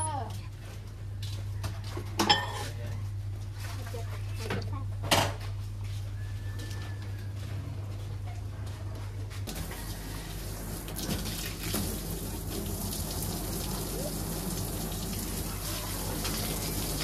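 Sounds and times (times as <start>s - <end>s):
water pouring from a hose: 9.5s - 17.0s.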